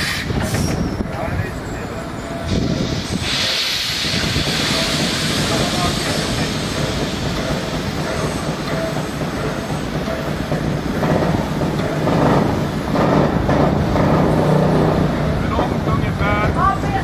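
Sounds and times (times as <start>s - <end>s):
steam hissing: 0.0s - 1.0s, 2.0s - 15.5s
steam locomotive chuffing: 0.0s - 17.0s.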